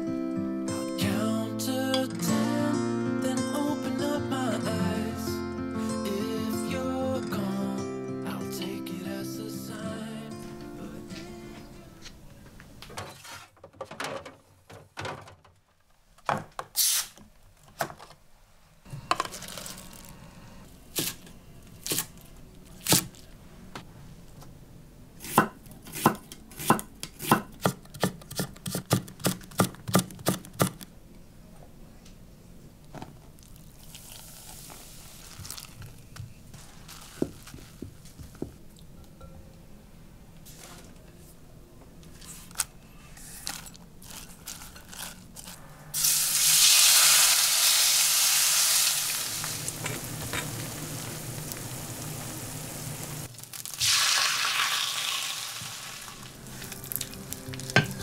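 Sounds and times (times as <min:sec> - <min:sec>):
knife chopping on wooden board: 0:25.2 - 0:30.8
soft hiss: 0:46.0 - 0:58.0.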